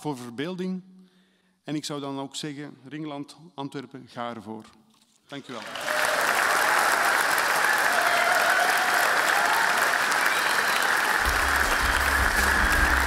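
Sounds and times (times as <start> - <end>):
audience applauding: 5.4 - 13.0
low bass sound: 11.2 - 13.0.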